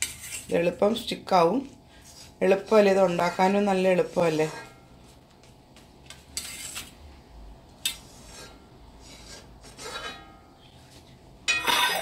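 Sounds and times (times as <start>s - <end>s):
steel spoon scraping plate: 0.0s - 0.5s, 6.3s - 7.0s, 7.9s - 10.4s, 11.5s - 12.0s.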